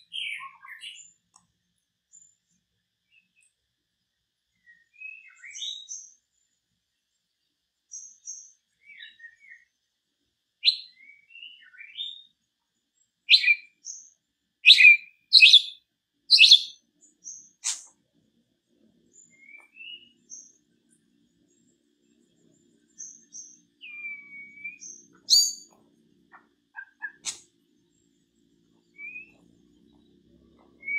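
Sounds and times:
songbird harsh chirps: 0:00.0 - 0:01.2, 0:04.6 - 0:06.2, 0:07.9 - 0:09.7, 0:10.6 - 0:12.3, 0:13.3 - 0:17.9, 0:19.2 - 0:20.6, 0:22.9 - 0:25.7, 0:26.3 - 0:27.5, 0:28.8 - 0:30.9
bird whistle: 0:10.6 - 0:12.2, 0:13.3 - 0:13.7, 0:14.6 - 0:16.8, 0:19.3 - 0:20.1, 0:23.8 - 0:25.7, 0:29.0 - 0:29.4
bird twittering: 0:13.3 - 0:13.7, 0:14.6 - 0:16.8, 0:23.8 - 0:25.7, 0:26.3 - 0:27.4.

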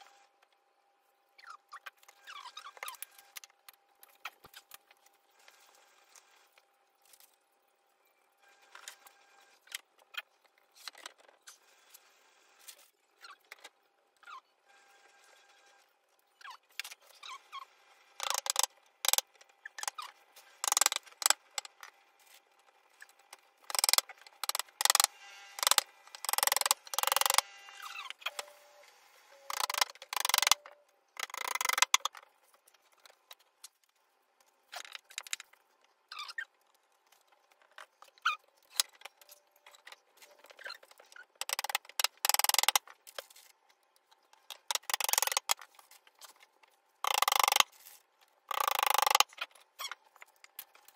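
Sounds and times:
knocks and clicks of furniture assembly: 0:29.4 - 0:32.2.

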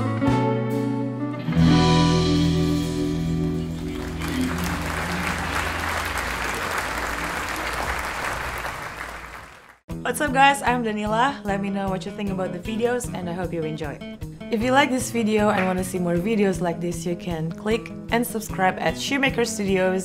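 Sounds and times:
electric guitar notes: 0:00.0 - 0:07.8
audience applause: 0:03.5 - 0:09.8.

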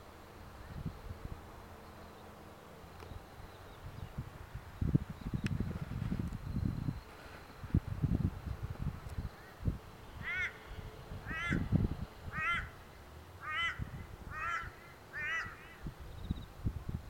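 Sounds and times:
bird calling: 0:10.2 - 0:11.7, 0:12.3 - 0:15.8.

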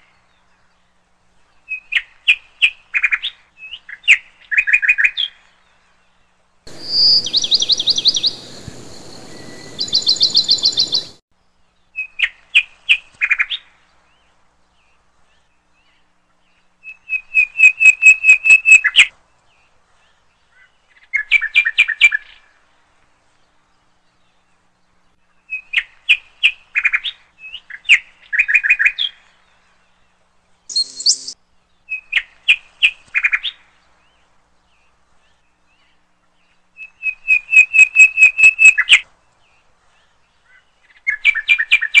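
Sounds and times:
small bird chirping: 0:06.7 - 0:11.2, 0:30.7 - 0:33.3.

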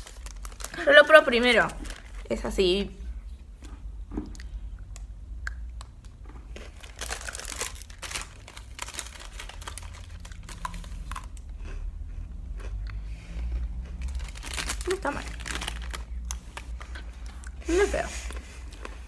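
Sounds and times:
plastic wrapper crinkling: 0:00.0 - 0:02.6, 0:06.0 - 0:11.5, 0:14.0 - 0:17.3.

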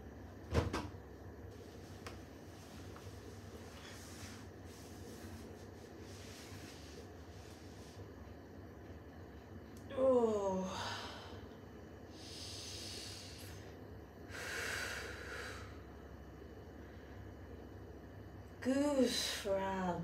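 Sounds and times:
woman moaning: 0:09.9 - 0:11.4
woman breathing heavily: 0:10.6 - 0:16.0.

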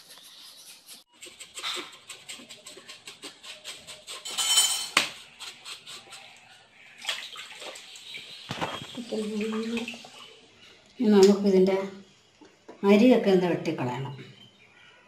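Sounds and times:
knife scraping fish skin: 0:00.0 - 0:06.6.

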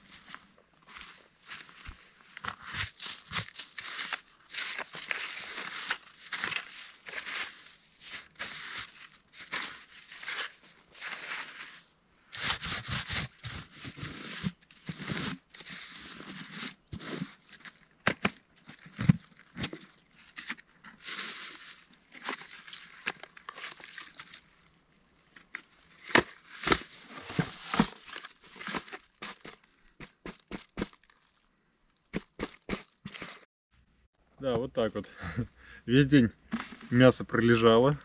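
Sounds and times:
hands digging through snow: 0:02.5 - 0:17.6.

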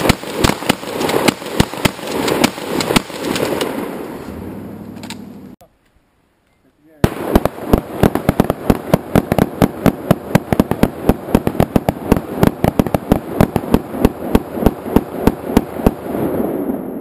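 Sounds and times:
rapid rifle gunfire: 0:00.0 - 0:03.8, 0:07.0 - 0:16.1
gunfire echo: 0:00.0 - 0:04.2, 0:07.0 - 0:17.0.

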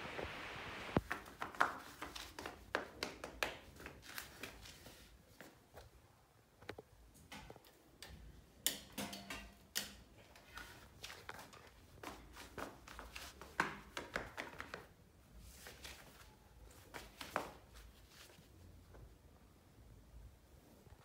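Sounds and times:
sandals tapping on tiled floor: 0:00.9 - 0:05.9, 0:06.7 - 0:15.0, 0:15.6 - 0:18.2.

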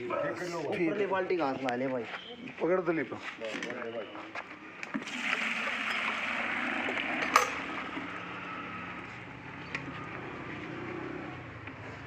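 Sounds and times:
milk pouring into bucket: 0:04.9 - 0:08.4.

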